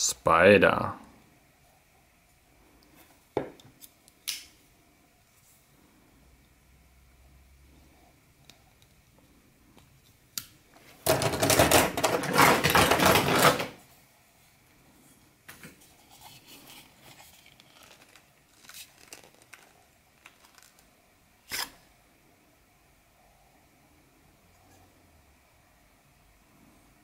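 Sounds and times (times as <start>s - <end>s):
knife clicks and scrapes: 21.5s - 21.8s.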